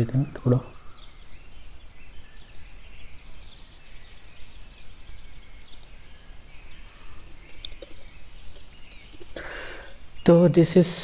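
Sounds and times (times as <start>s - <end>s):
light clicks: 5.7s - 6.0s.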